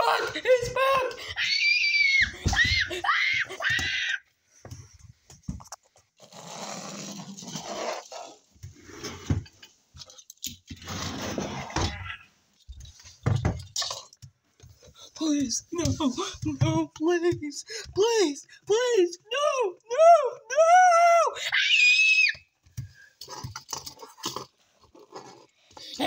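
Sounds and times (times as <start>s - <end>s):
person screaming: 0.0s - 4.2s, 19.2s - 22.4s.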